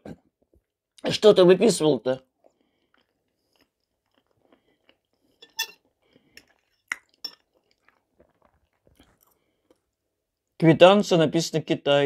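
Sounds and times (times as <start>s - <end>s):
quiet chewing: 2.3s - 10.6s.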